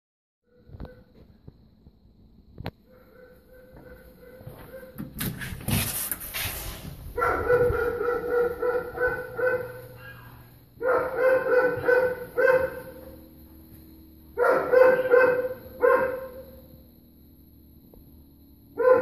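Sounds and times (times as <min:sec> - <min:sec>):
dogs barking behind a door: 0:00.5 - 0:01.4, 0:02.6 - 0:05.9, 0:07.0 - 0:13.5, 0:14.2 - 0:16.8, 0:18.7 - 0:19.0.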